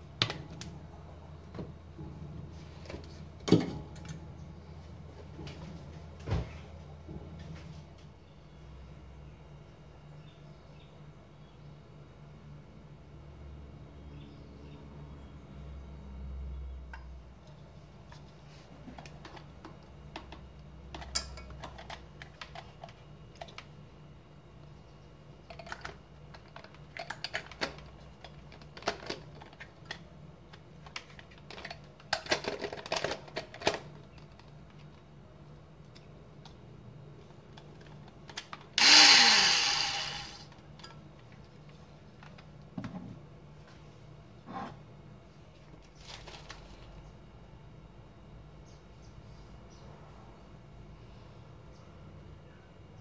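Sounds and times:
plastic parts clicking and knocking: 0:25.5 - 0:34.9
hand blender motor whining: 0:38.8 - 0:40.5.

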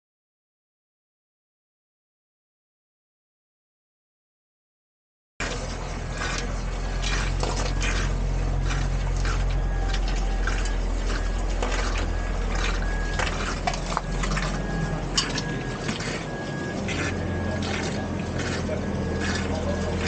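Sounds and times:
steady low hum: 0:05.4 - 0:20.0
water spraying from burst pipe: 0:05.4 - 0:20.0.

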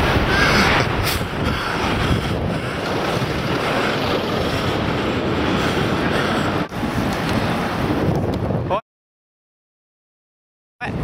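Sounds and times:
city traffic rumble: 0:00.0 - 0:08.7
wind on microphone: 0:00.0 - 0:08.8.

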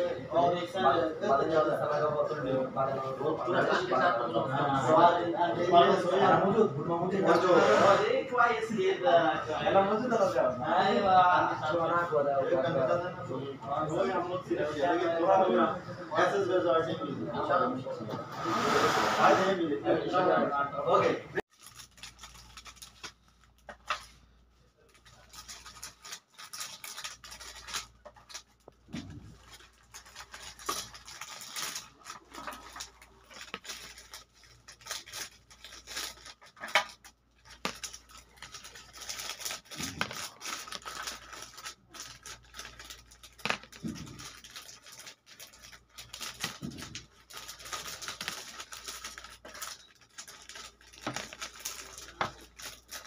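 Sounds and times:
bangles clicking and rustling on paper: 0:21.5 - 0:24.2, 0:24.8 - 0:53.0.

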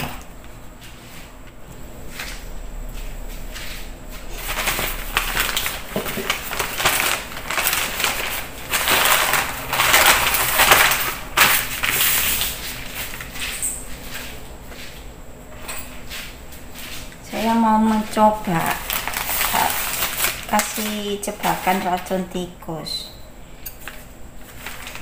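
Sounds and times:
newspaper rustling and crinkling: 0:04.2 - 0:14.3, 0:17.9 - 0:22.4, 0:23.8 - 0:25.0.

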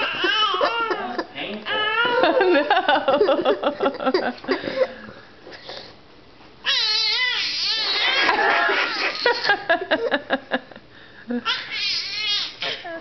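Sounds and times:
baby squealing high-pitched: 0:06.6 - 0:09.5, 0:11.4 - 0:13.0.

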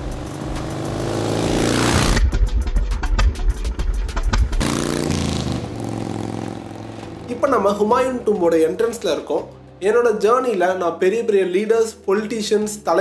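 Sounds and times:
motorcycle engine rumbling: 0:04.2 - 0:08.0.

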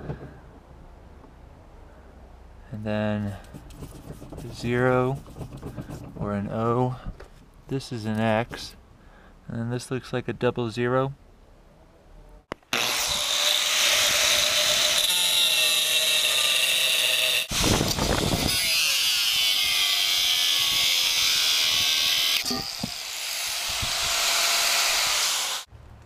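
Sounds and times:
angle grinder cutting steel: 0:12.7 - 0:25.7.

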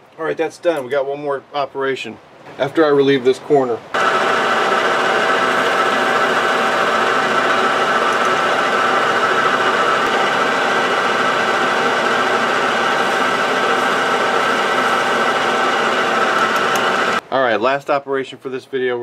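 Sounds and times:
cutting tool on metal workpiece: 0:04.0 - 0:17.2
metal lathe whining: 0:04.0 - 0:17.2.

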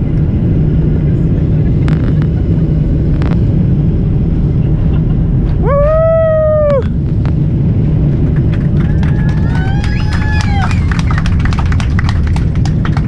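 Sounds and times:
jet engines low rumble: 0:00.0 - 0:13.0
passenger whooping: 0:05.5 - 0:07.0, 0:08.1 - 0:13.0.

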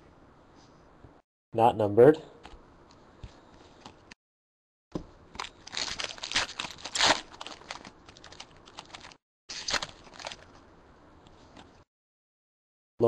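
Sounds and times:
foil wrapper tearing and crinkling: 0:05.4 - 0:10.5.

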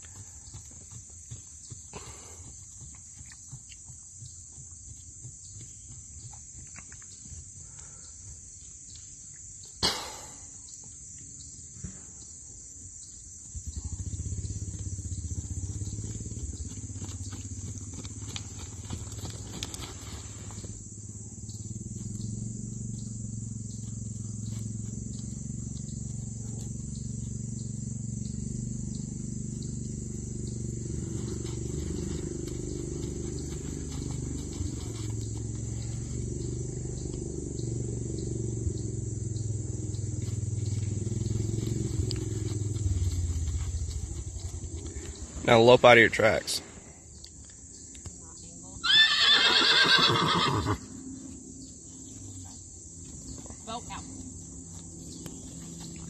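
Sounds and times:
low engine-like drone: 0:19.9 - 0:48.6.

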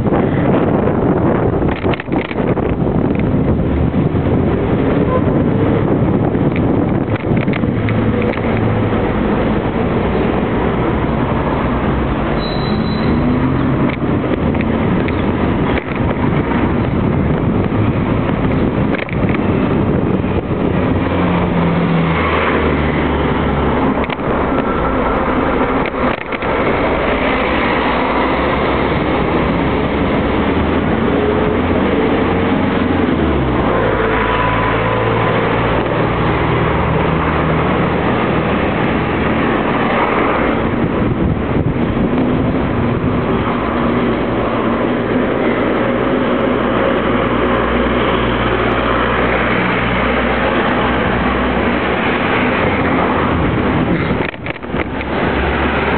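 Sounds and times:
bicycle road and wind noise: 0:00.0 - 0:55.9
vehicle engines in traffic: 0:00.0 - 0:55.9.

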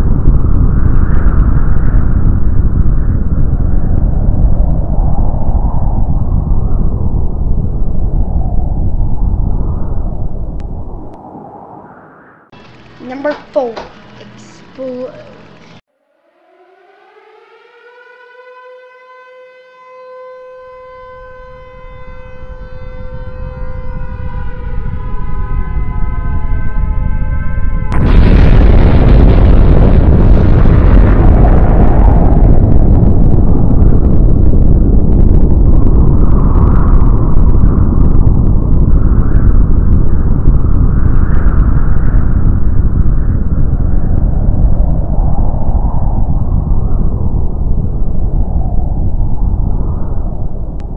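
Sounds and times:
deep rumble: 0:00.0 - 0:50.9
siren wailing: 0:15.2 - 0:29.4.

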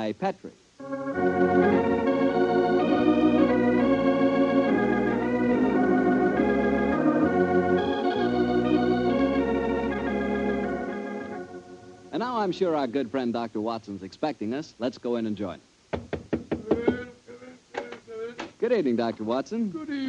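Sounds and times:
organ playing sustained chords: 0:00.8 - 0:13.7.

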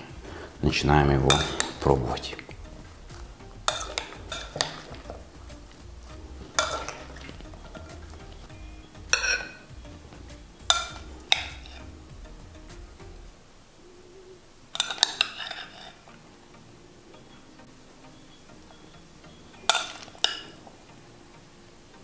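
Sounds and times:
metal spoon clinking on ceramic plate: 0:03.7 - 0:05.1, 0:09.2 - 0:09.6, 0:10.7 - 0:11.8, 0:14.8 - 0:15.8.

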